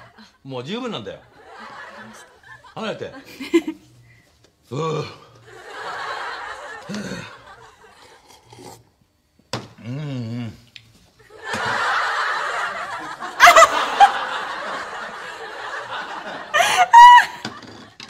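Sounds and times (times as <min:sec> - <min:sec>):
crowd laughing: 0:01.4 - 0:03.9, 0:05.4 - 0:08.3, 0:11.2 - 0:18.0
woman laughing loudly: 0:12.5 - 0:15.5, 0:16.2 - 0:17.7.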